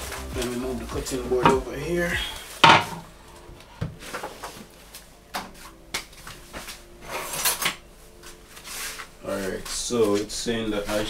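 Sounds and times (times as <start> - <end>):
kitchen items knocking and clattering: 2.6 - 3.1.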